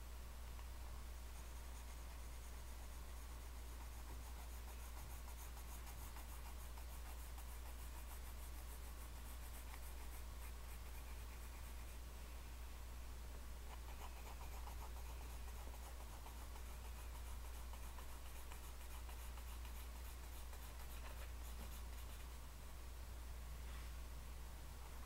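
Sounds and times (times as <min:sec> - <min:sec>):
steady low hum: 0:00.0 - 0:25.0
pencil scratching on paper: 0:01.3 - 0:12.0, 0:13.7 - 0:22.4.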